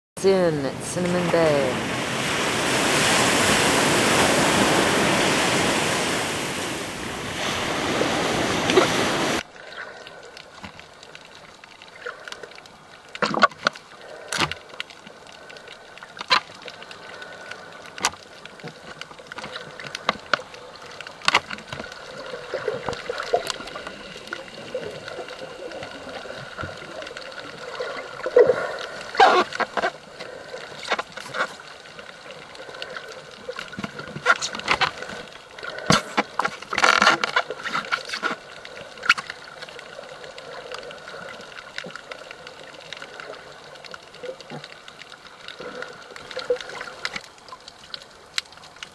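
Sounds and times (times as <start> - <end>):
waves breaking on beach: 0.2 - 9.8
underwater clicks and crackles: 8.6 - 48.9.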